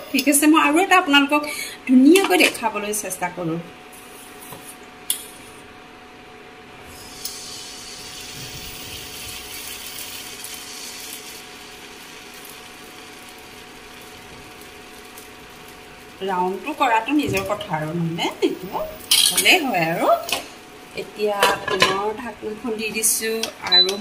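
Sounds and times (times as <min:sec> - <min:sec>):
induction cooktop hum: 0:00.0 - 0:24.0
batter sizzling in a pan: 0:06.9 - 0:17.2.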